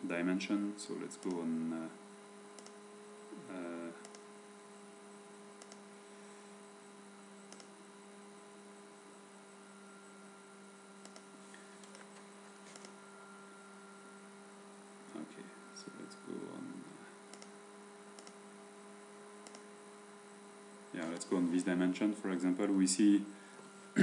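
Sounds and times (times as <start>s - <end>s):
faint electrical hum: 0.0s - 24.0s
computer mouse clicks: 2.6s - 2.8s, 4.0s - 4.3s, 5.6s - 5.9s, 7.5s - 7.8s, 11.0s - 13.0s, 17.3s - 18.4s, 19.4s - 19.7s.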